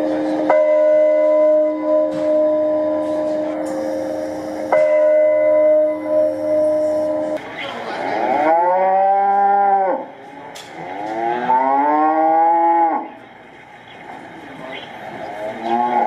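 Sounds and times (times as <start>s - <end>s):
cow mooing through speaker: 8.1s - 10.1s, 10.8s - 13.2s, 15.4s - 16.0s.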